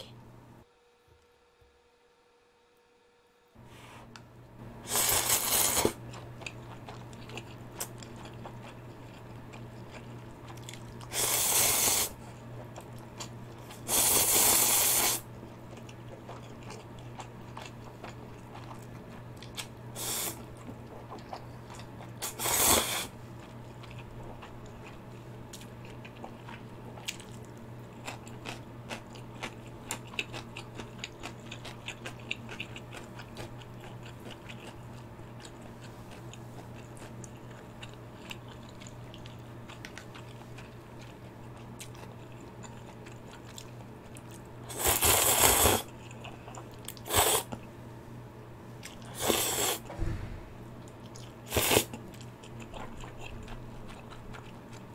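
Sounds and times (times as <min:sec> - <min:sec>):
wet chewing: 0:04.9 - 0:11.1, 0:15.6 - 0:47.7, 0:50.8 - 0:54.9
noisy noodle slurping: 0:44.7 - 0:45.9, 0:47.0 - 0:47.5, 0:51.5 - 0:51.9.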